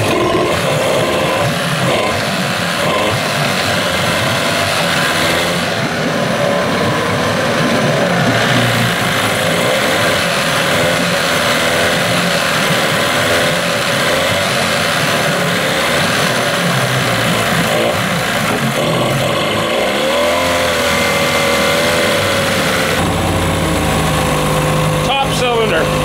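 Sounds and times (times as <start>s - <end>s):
outboard motor running: 0.0s - 26.0s.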